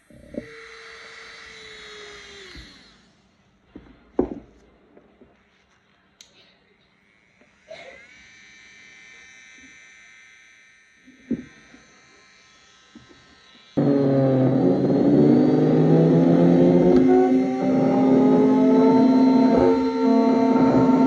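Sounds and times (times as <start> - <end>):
nail drill whine: 0.0 - 3.3, 7.0 - 21.0
loud low motor hum: 13.8 - 21.0.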